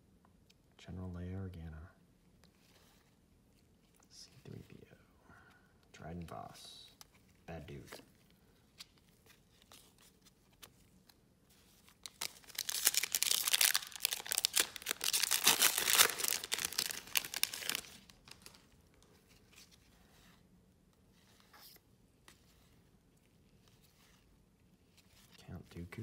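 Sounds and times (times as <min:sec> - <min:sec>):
wrapper tearing and crinkling: 0:12.0 - 0:18.8.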